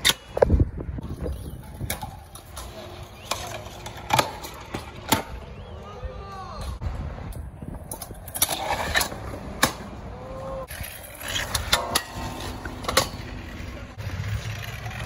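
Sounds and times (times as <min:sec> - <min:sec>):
scooter wheels rolling on concrete: 0:00.0 - 0:15.0.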